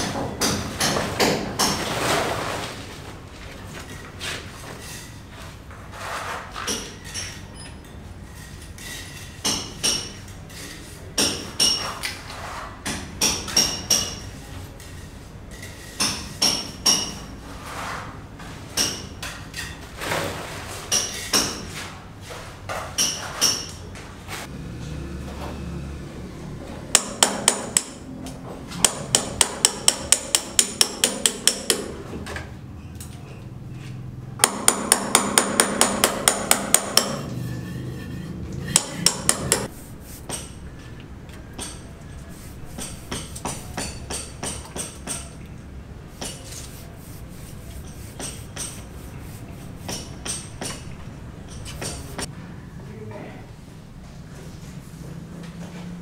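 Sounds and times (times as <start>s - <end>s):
hammer striking steel chisel: 9.4s - 10.2s, 11.2s - 11.9s, 12.8s - 14.2s, 16.0s - 17.3s, 18.8s - 19.2s, 26.9s - 28.0s, 28.8s - 32.0s, 34.4s - 40.7s, 41.5s - 45.5s, 46.1s - 52.3s.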